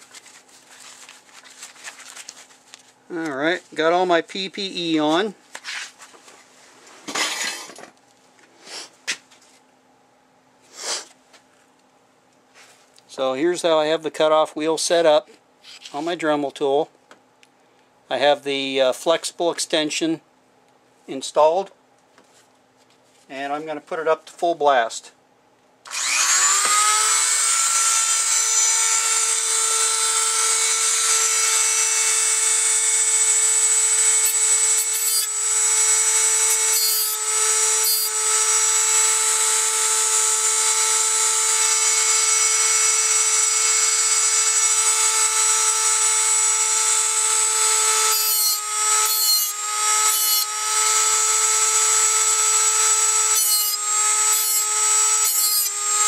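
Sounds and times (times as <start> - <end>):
cutoff wheel grinding saw teeth: 25.9 - 56.0
rotary tool whining: 25.9 - 56.0.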